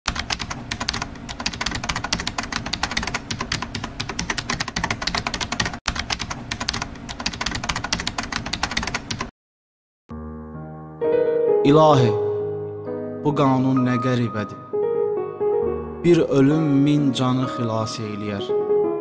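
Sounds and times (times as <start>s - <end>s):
fast keyboard typing: 0.1s - 9.3s.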